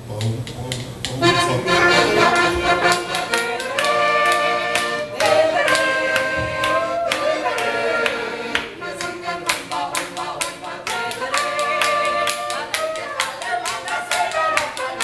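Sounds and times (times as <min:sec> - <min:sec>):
oompah band drinking song: 0:00.0 - 0:15.0
group hand-clapping: 0:00.2 - 0:15.0
trumpet holding notes: 0:01.2 - 0:09.5, 0:10.6 - 0:15.0
woman singing: 0:01.4 - 0:15.0.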